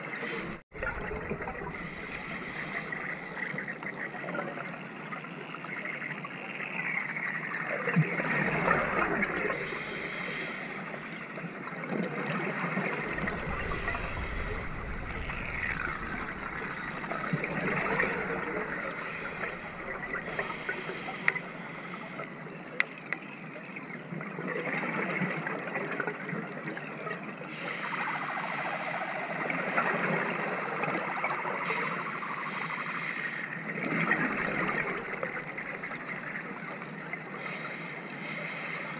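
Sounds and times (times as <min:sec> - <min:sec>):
exhaled bubbles gurgling: 0:00.0 - 0:22.3, 0:24.4 - 0:37.8
regulator inhalation hiss: 0:01.7 - 0:03.4, 0:09.5 - 0:11.3, 0:13.4 - 0:16.8, 0:18.8 - 0:22.2, 0:27.5 - 0:29.1, 0:31.6 - 0:33.6, 0:37.4 - 0:38.9.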